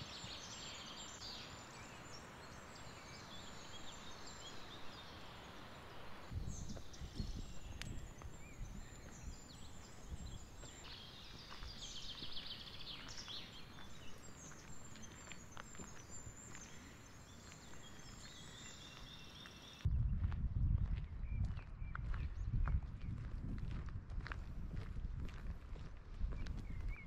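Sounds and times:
songbirds chirping and trilling: 0.0s - 19.9s.

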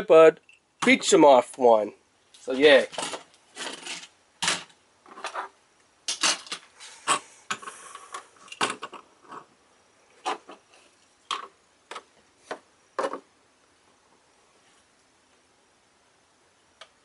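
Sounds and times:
plastic parts clicking and knocking: 2.9s - 9.5s, 11.3s - 13.3s.

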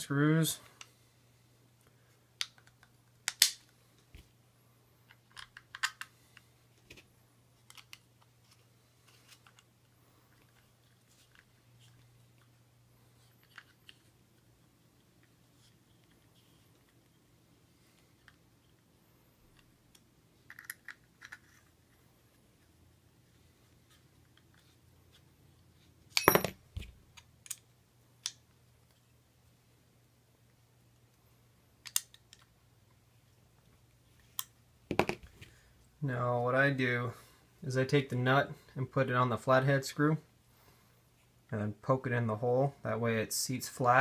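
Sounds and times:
plastic parts clicking: 5.1s - 6.1s, 31.8s - 32.5s.

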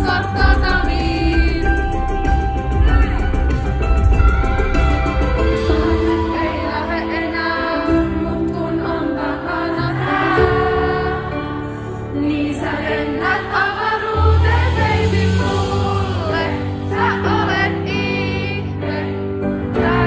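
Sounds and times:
heavy bass: 0.0s - 6.4s
woman singing: 0.0s - 11.4s.

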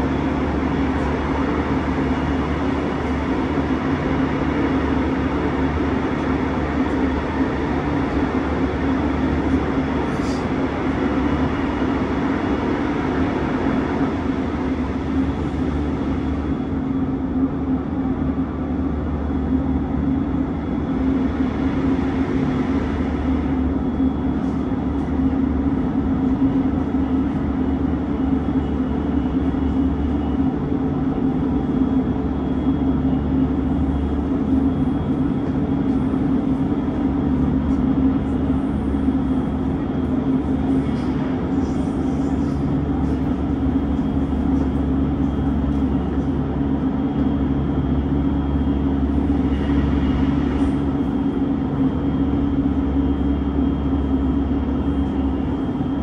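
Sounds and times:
constant running hum: 0.0s - 56.0s
train rolling rumble: 0.0s - 56.0s.

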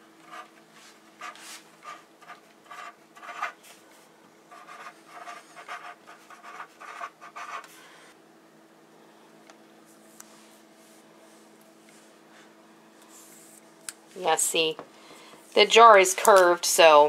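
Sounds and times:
chalk pen scratching on label: 1.2s - 3.6s, 4.5s - 7.7s.

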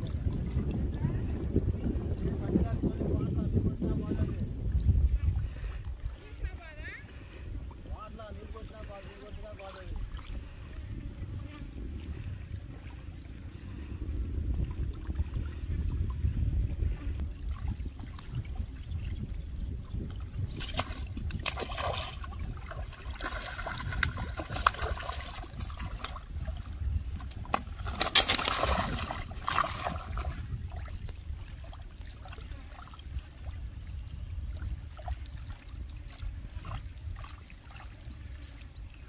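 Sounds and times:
wind rumble on microphone: 0.0s - 39.0s
rustling and scraping on stones: 27.3s - 29.4s.

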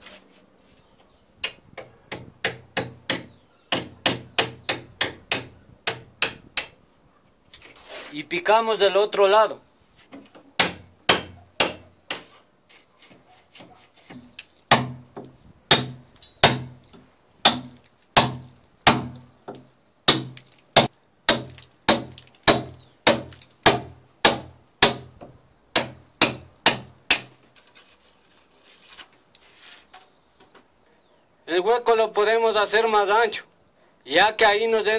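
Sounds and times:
hammer striking chisel: 1.4s - 6.7s, 10.6s - 12.3s.

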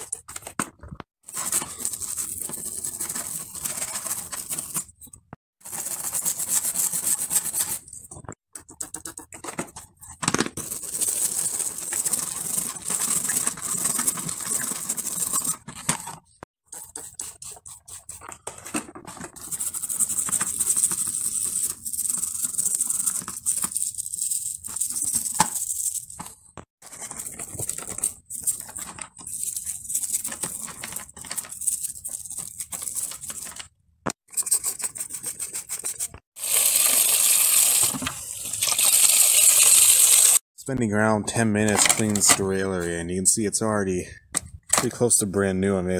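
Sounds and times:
stiff brush scrubbing metal: 5.6s - 15.8s, 16.7s - 18.6s.

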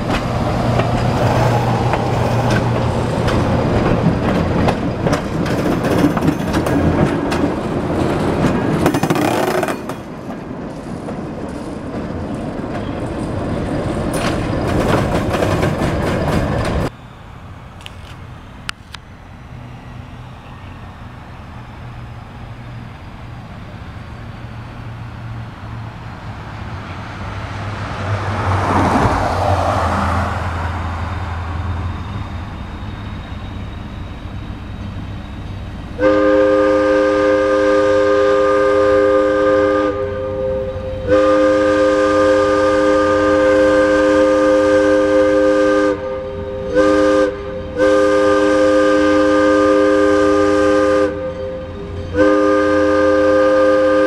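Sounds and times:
locomotive engine rumbling: 0.0s - 54.0s
locomotive air horn chord: 36.0s - 54.0s.

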